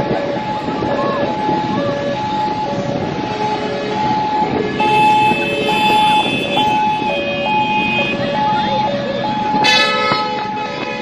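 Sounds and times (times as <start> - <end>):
street and crowd noise: 0.0 - 11.0
two-tone siren: 0.1 - 11.0
car horn held: 4.8 - 7.1.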